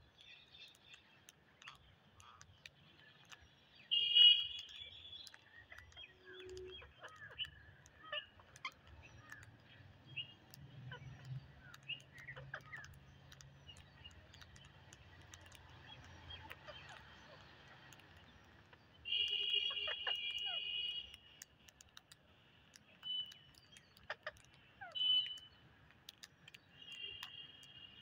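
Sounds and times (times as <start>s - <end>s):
faint clicks: 0.0s - 28.0s
parakeet chirps: 0.2s - 28.0s
parakeet harsh call: 19.1s - 20.8s.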